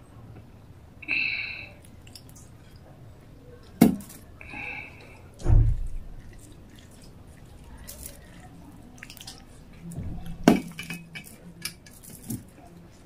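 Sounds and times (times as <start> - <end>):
heavy low thump: 5.4 - 6.1
fingers mixing rice with gravy: 5.9 - 13.0.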